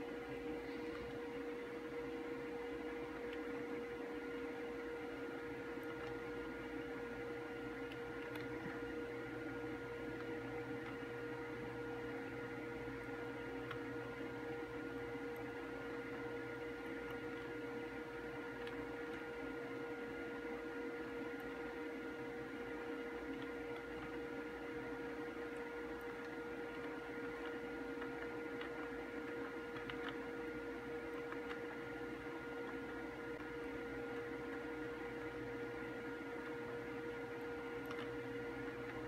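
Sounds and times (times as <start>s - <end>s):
electrical hum: 0.0s - 39.0s
faint clicks: 5.7s - 6.6s, 7.8s - 8.9s, 18.4s - 19.3s, 25.4s - 30.3s, 31.1s - 35.4s, 37.6s - 39.0s.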